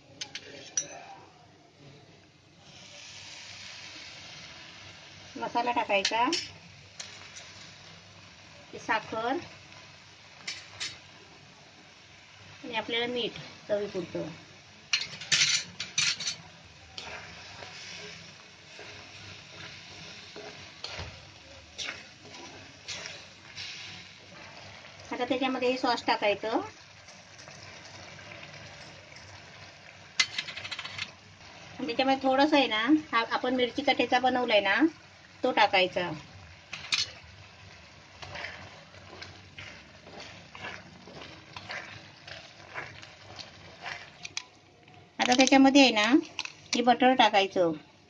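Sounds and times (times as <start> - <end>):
sauce sizzling and bubbling: 2.2 - 48.0
spatula stirring sauce: 17.0 - 25.7, 36.7 - 44.7.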